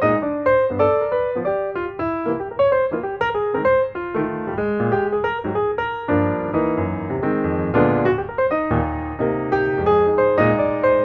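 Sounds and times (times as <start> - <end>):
piano music: 0.0 - 11.0.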